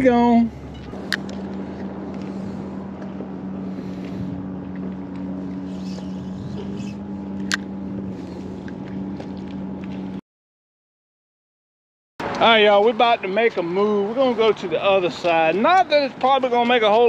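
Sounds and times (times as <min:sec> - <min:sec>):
engine drone: 0:00.0 - 0:10.2.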